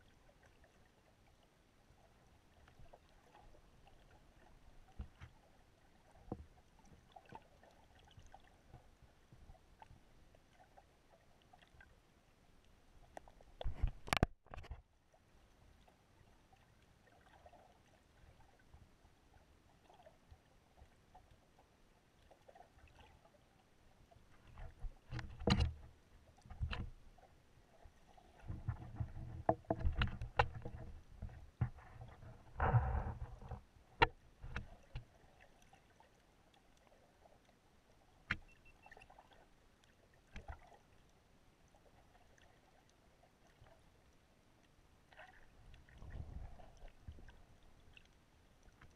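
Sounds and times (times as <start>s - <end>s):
sharp clicks and knocks: 25.1s - 25.8s, 28.7s - 32.0s
underwater wash of moving water: 45.0s - 48.9s.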